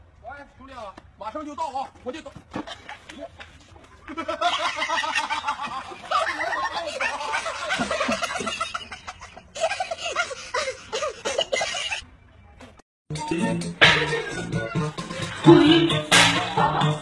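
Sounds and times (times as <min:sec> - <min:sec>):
high-pitched cackling laughter: 0:04.0 - 0:12.0.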